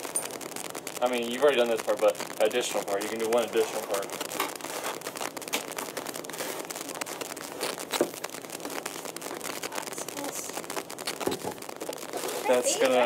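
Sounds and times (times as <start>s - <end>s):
plastic and cardboard rustling: 3.6s - 9.4s, 11.0s - 13.0s.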